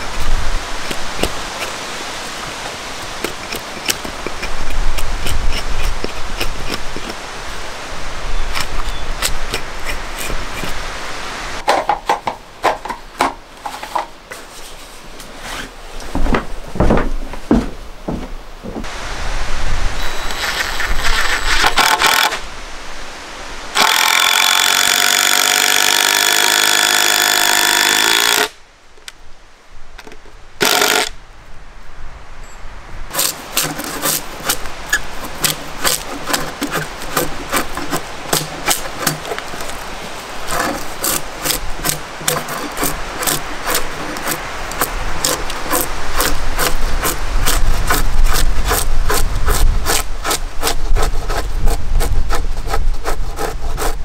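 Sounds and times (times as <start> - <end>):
drawknife shaving timber: 0.0 - 7.2, 8.5 - 10.8, 23.8 - 28.5, 33.1 - 54.0
cordless drill driving screws: 23.8 - 28.5, 30.6 - 31.1.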